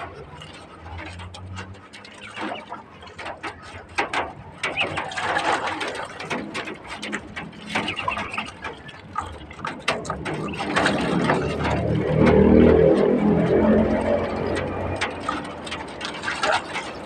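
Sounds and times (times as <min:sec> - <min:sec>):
feet scrabbling on wire mesh: 0:00.0 - 0:12.9
water splashing: 0:00.0 - 0:17.0
wings flapping: 0:00.0 - 0:17.0.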